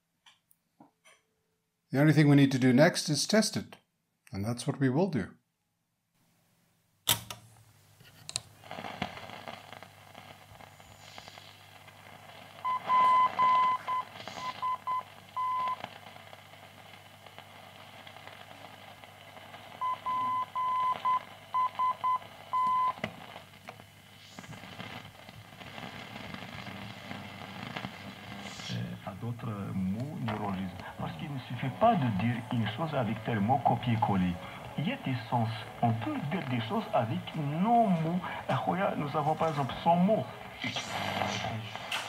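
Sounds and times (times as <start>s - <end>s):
radio hiss and static: 8.0s - 42.0s
morse code beeps: 12.7s - 15.8s, 19.8s - 23.0s
low hum: 24.8s - 41.9s.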